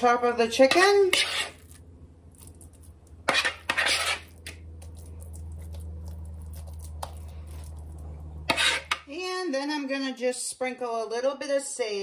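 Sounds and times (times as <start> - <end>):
stuffing scraped and squishing: 0.0 - 9.1
steady low hum: 0.0 - 10.8.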